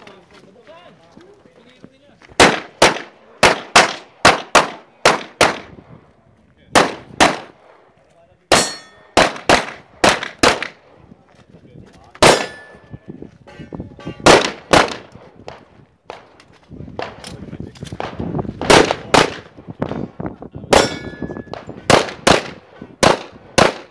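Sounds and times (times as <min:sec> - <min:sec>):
pistol shots: 0:02.4 - 0:05.7, 0:06.7 - 0:07.7, 0:08.5 - 0:10.8, 0:12.2 - 0:12.8, 0:14.2 - 0:16.3, 0:17.9 - 0:19.5, 0:20.7 - 0:23.9
metallic clang of steel target: 0:08.5 - 0:09.2, 0:12.3 - 0:12.9, 0:20.8 - 0:21.6.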